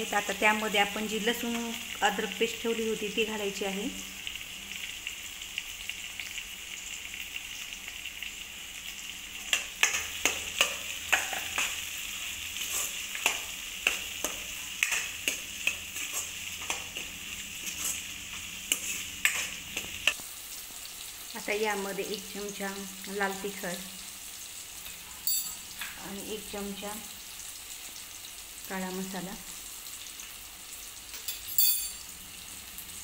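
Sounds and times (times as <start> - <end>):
vegetables sizzling in hot oil: 0.0 - 33.0
metal spatula knocking on pan: 9.8 - 11.7.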